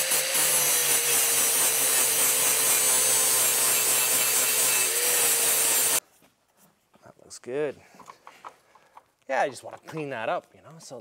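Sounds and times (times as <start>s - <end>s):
angle grinder grinding metal: 0.0s - 6.0s.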